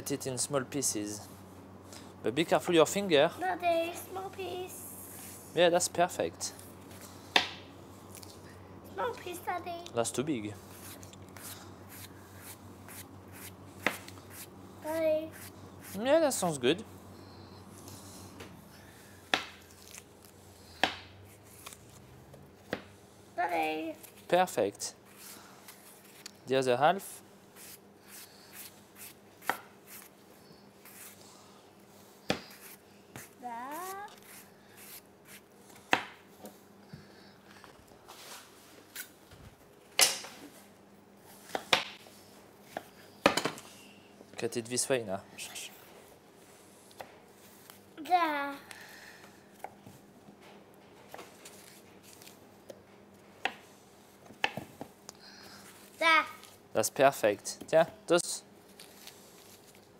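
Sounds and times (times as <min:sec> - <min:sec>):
knife cutting apples: 0:32.2 - 0:36.2.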